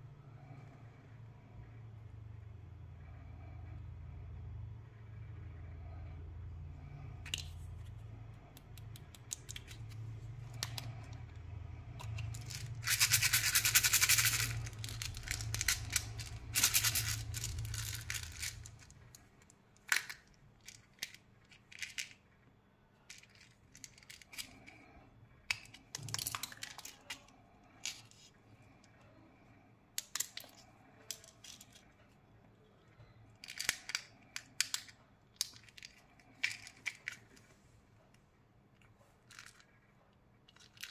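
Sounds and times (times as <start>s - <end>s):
plastic wrapper crinkling: 12.0s - 19.2s.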